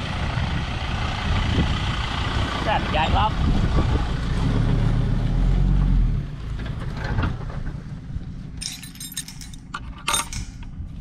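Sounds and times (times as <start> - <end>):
vehicle engine rumbling: 0.0 - 11.0
metallic jangling and clinking: 8.6 - 10.7.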